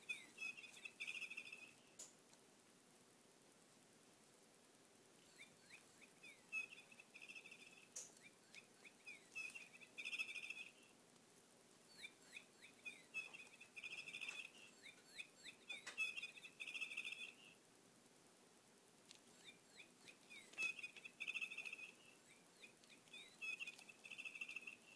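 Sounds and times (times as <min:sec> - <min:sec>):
electronic bird chirping: 0:00.0 - 0:02.0, 0:05.2 - 0:11.0, 0:11.9 - 0:17.6, 0:19.2 - 0:24.9.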